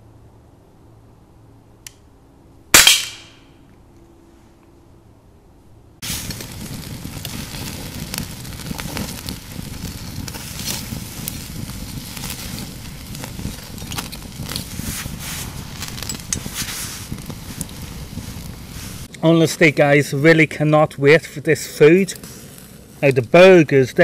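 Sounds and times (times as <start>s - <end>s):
wood fire crackling and popping: 6.0s - 24.0s.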